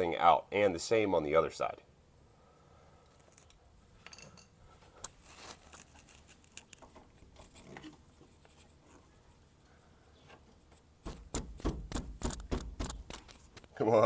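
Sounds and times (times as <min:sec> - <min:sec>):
screwdriver scraping and clicking: 0:05.5 - 0:08.7
sharp knocks: 0:11.0 - 0:13.2.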